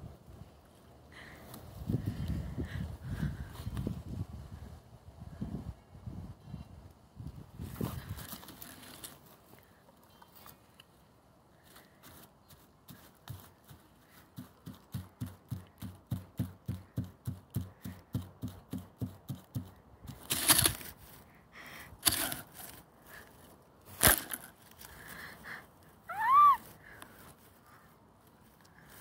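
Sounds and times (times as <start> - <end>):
crunching rustles: 7.6 - 11.0, 20.1 - 21.4, 22.0 - 25.4.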